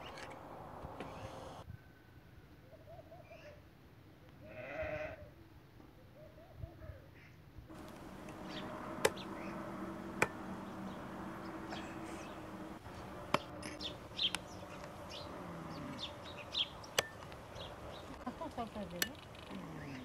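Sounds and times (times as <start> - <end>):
small birds chirping: 0.0 - 1.6, 7.7 - 20.0
cleaver chopping on wood: 9.0 - 9.2.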